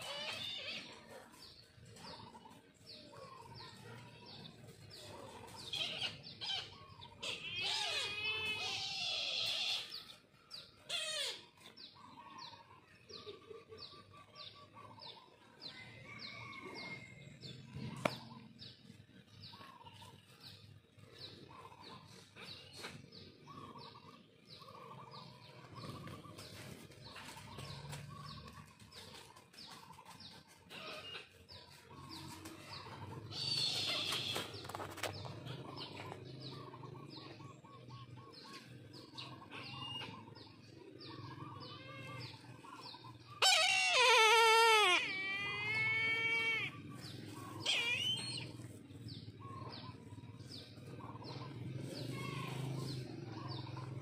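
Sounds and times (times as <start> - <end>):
shrill bird call: 41.4 - 48.7.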